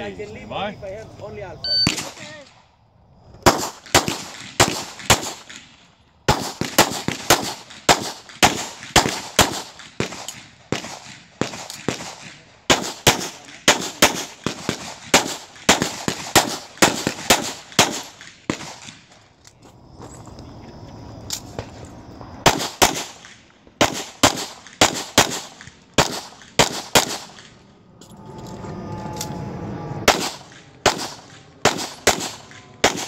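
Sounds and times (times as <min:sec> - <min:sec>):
pistol shots with ringing echo: 0:01.7 - 0:02.4, 0:03.4 - 0:19.1, 0:22.4 - 0:27.6, 0:30.0 - 0:33.0.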